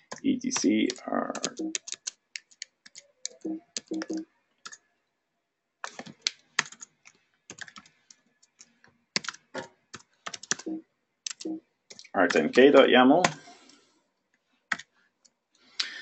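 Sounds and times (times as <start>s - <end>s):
computer keyboard typing: 0.0s - 4.8s, 5.8s - 13.4s.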